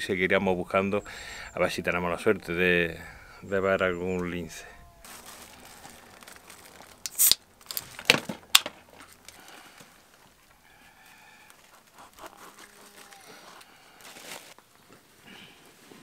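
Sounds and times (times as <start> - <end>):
food wrapping crinkling and tearing: 4.9 - 10.3, 11.0 - 14.7.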